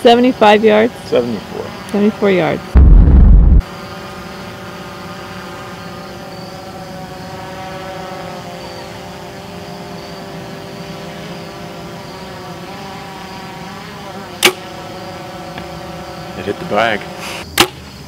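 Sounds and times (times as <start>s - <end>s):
engine drone: 2.8s - 3.6s.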